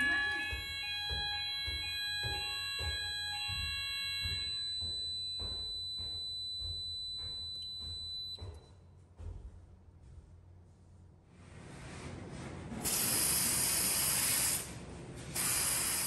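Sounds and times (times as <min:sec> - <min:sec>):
high electronic alarm tone: 0:00.0 - 0:08.7
pulsing alarm beat: 0:00.0 - 0:08.8, 0:15.4 - 0:16.0.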